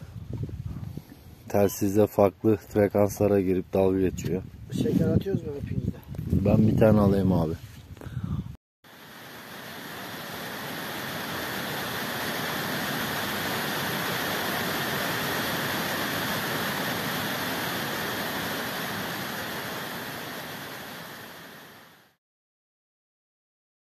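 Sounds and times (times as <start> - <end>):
water rushing over rocks: 8.9 - 22.2.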